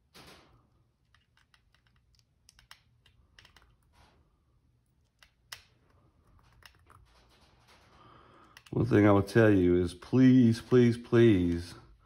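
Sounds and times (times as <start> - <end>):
small metal parts clicking: 1.0 - 3.8.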